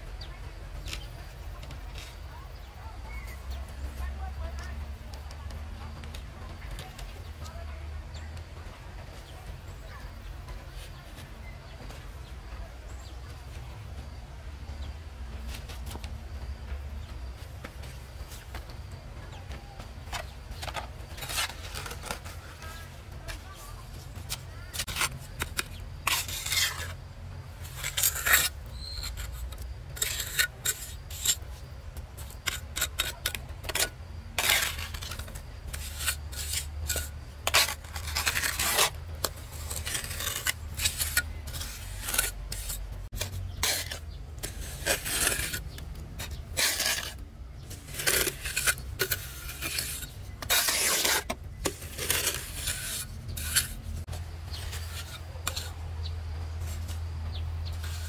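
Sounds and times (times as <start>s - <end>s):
hand tool rasping and scraping: 20.1s - 23.5s, 24.1s - 27.0s, 27.6s - 55.8s, 57.6s - 58.0s.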